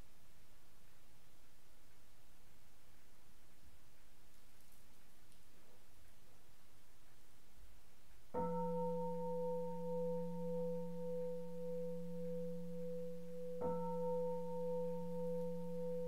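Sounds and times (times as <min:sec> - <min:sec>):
temple bowl bell ringing: 0:08.4 - 0:16.0.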